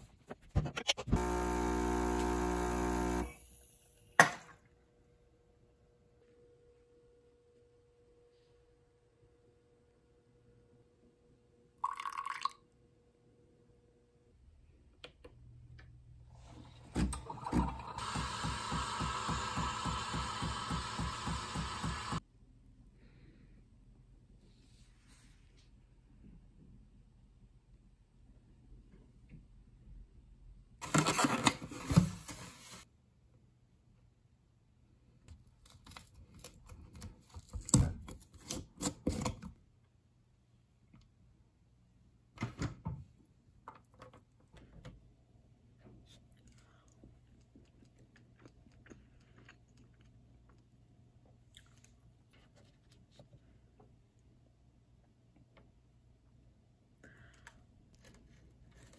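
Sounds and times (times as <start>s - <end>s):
espresso machine pump pulsing: 1.1s - 3.4s, 17.1s - 22.2s
steam wand hissing: 18.0s - 22.2s.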